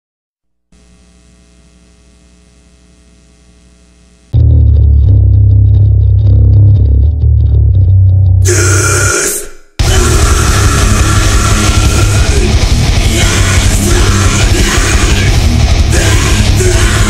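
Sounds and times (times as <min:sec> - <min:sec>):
distorted guitars and bass chugging: 0:04.2 - 0:17.0.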